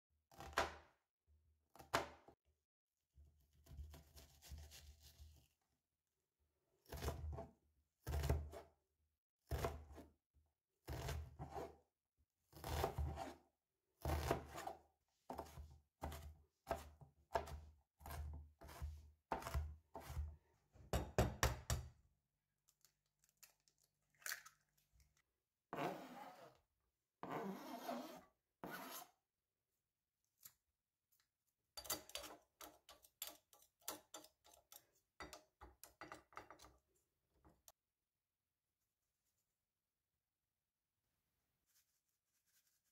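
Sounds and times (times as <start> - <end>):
knife scraping board: 10.9 - 11.7, 12.6 - 13.4, 15.3 - 20.3, 27.2 - 29.2, 31.8 - 34.6
knife chopping on plastic board: 15.3 - 20.3.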